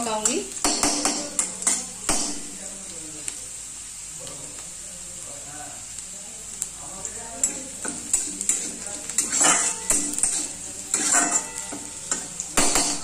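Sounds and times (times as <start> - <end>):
onions sizzling in oil: 0.0 - 13.0
spatula scraping pan: 7.4 - 13.0.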